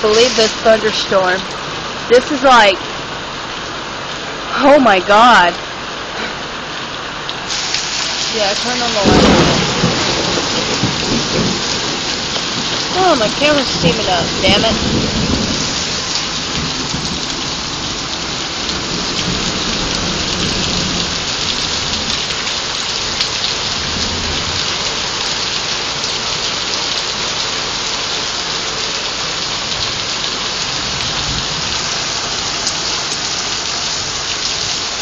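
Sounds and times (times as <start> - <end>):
heavy rain pouring: 0.0 - 35.0
low rumble of thunder: 8.4 - 25.4, 29.8 - 32.6.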